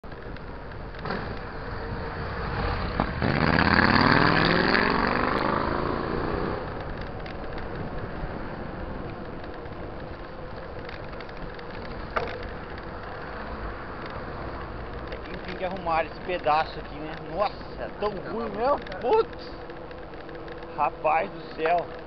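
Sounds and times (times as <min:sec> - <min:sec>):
wind and road noise: 0:00.0 - 0:22.0
motorcycle passing by: 0:01.0 - 0:06.8.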